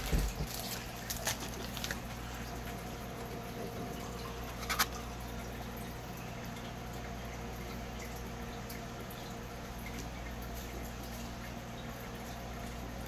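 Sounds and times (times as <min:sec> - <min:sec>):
low electrical hum: 0:00.0 - 0:13.0
trading cards crackling: 0:00.4 - 0:02.2.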